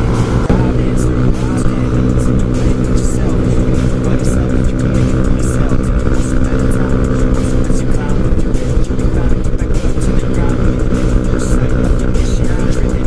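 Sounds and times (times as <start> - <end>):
motorcycle engine at high revs: 0.0 - 13.0.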